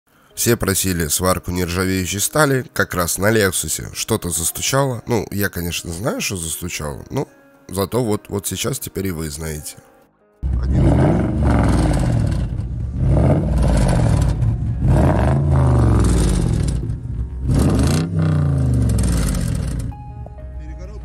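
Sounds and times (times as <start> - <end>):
exhaust knocking rattle: 10.4 - 19.9
car engine revving: 10.4 - 20.0.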